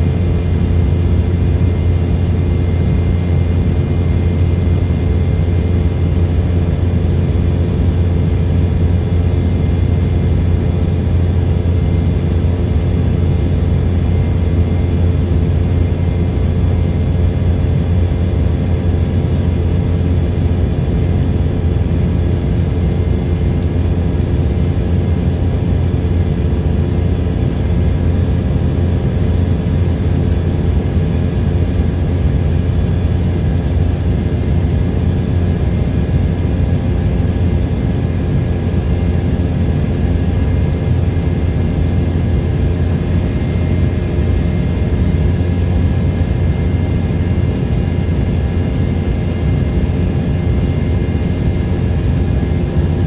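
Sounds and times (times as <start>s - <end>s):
airliner cabin drone: 0.0s - 53.0s
constant hums and whines: 0.0s - 53.0s.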